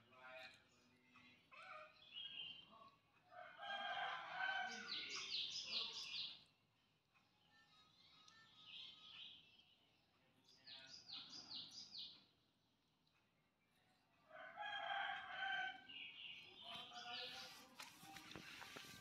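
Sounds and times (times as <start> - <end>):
rooster crowing: 3.3 - 5.0, 14.3 - 15.9.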